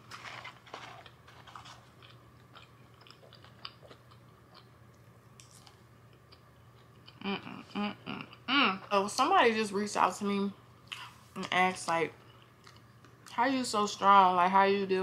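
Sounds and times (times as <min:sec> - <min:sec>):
person chewing crunchy food: 0:00.0 - 0:07.3.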